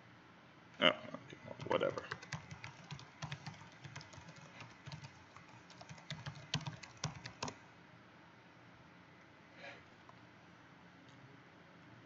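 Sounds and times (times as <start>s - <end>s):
typing on computer keyboard: 1.6s - 7.6s.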